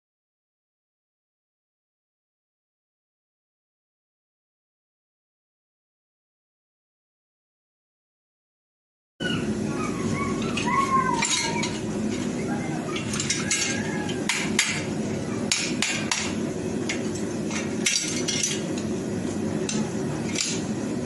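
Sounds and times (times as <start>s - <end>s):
steady low hum: 9.2s - 21.0s.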